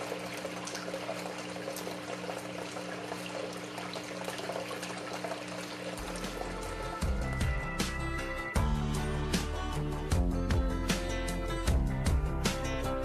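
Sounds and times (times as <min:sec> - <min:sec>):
water running through sluice box: 0:00.0 - 0:07.9.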